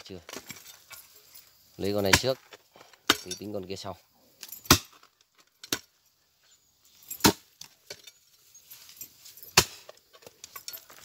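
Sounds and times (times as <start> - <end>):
hoe chopping into soil: 2.0 - 3.3, 4.6 - 5.0, 7.1 - 7.8, 9.4 - 10.0.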